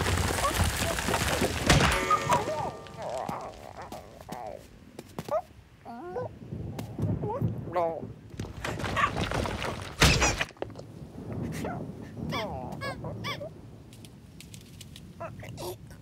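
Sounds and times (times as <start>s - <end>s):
rumbling crash of falling rock: 0.0s - 4.0s, 8.3s - 11.0s.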